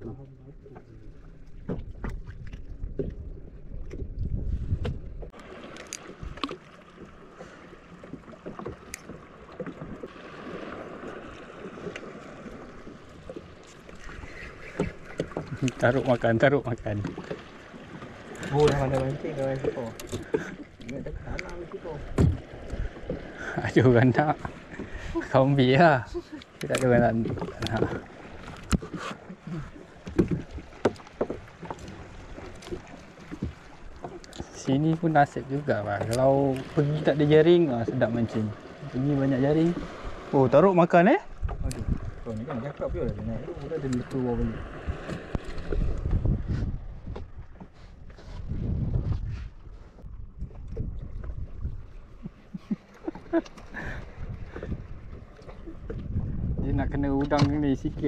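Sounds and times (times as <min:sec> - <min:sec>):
sea noise: 0:00.0 - 0:58.0
wind: 0:00.0 - 0:58.0
water washing: 0:05.2 - 0:46.4.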